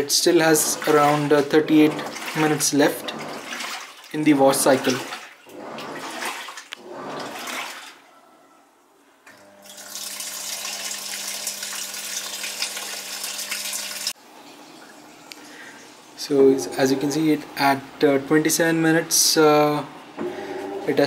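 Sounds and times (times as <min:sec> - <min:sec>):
water rushing: 0:00.0 - 0:07.9
washing machine low hum: 0:00.0 - 0:08.0, 0:09.4 - 0:21.0
water sloshing in washing machine: 0:00.0 - 0:08.2, 0:09.4 - 0:18.0.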